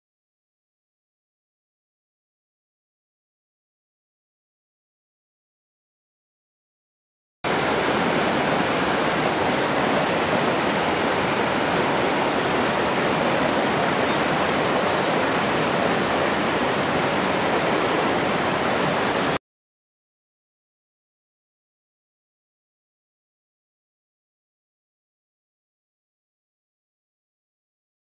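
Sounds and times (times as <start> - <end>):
river whitewater over rocks: 7.5 - 19.4.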